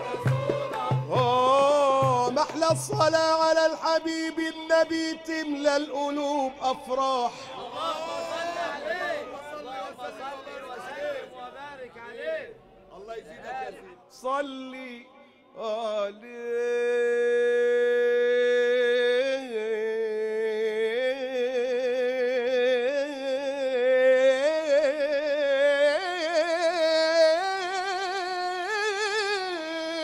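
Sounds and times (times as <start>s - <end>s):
man singing devotional chant: 0.0s - 30.0s.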